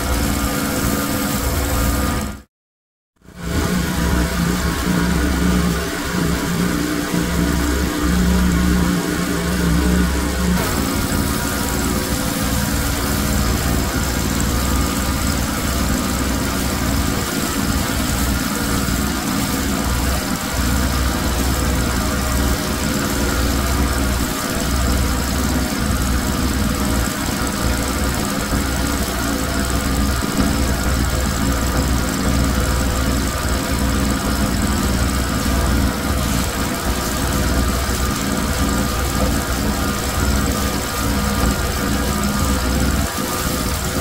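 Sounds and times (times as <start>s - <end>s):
pressure washer engine drone: 0.0s - 2.5s, 3.2s - 44.0s
water jet spraying hiss: 10.6s - 25.8s.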